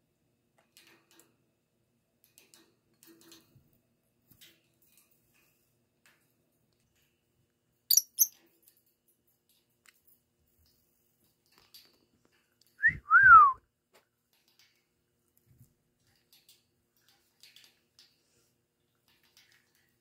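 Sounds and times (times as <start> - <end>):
lovebird chirps: 7.9 - 8.3.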